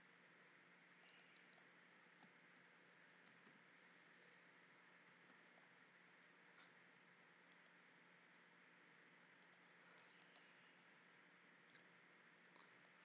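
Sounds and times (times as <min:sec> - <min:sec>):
mouse and keyboard clicks: 0:01.0 - 0:03.6, 0:07.5 - 0:07.8, 0:09.4 - 0:10.6, 0:11.6 - 0:13.0.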